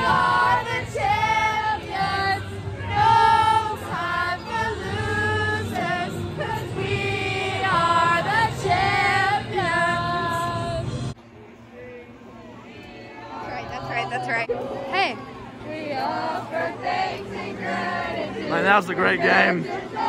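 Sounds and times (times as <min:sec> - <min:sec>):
girls singing together: 0:00.0 - 0:10.8, 0:15.6 - 0:18.5, 0:19.5 - 0:20.0.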